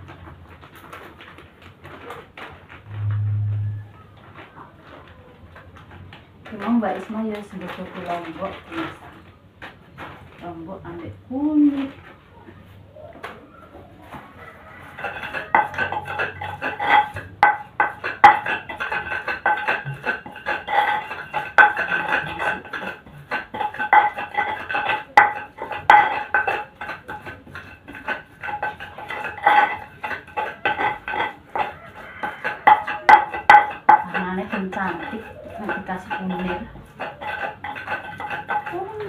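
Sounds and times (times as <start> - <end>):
pestle pounding in stone mortar: 14.8 - 39.0.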